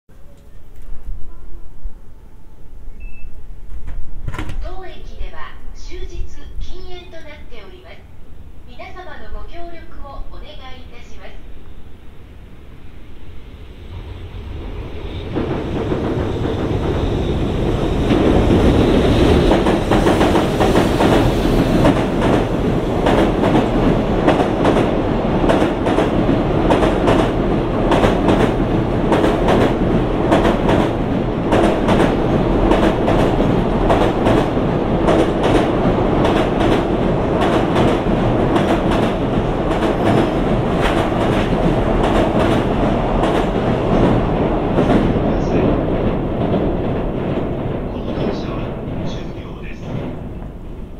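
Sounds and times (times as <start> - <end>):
electric locomotive passing: 4.9 - 50.9
train wheels clickety-clack: 14.9 - 50.9.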